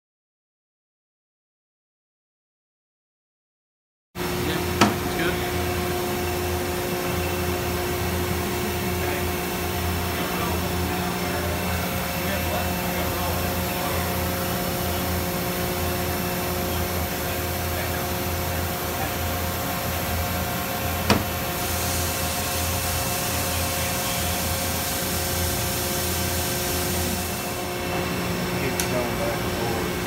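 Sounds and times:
machine humming: 4.2 - 30.0
sharp click: 28.7 - 29.0.

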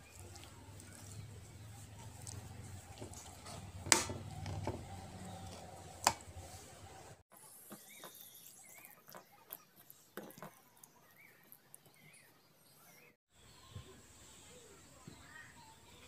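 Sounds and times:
mash mixed by hand: 0.0 - 10.6
spoon mashing eggplant: 0.0 - 12.3.

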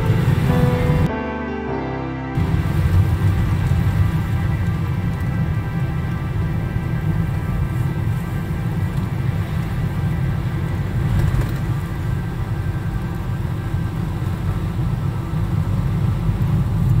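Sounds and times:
car driving on wet road: 0.0 - 1.1, 2.4 - 17.0
soft background music: 0.0 - 10.7.

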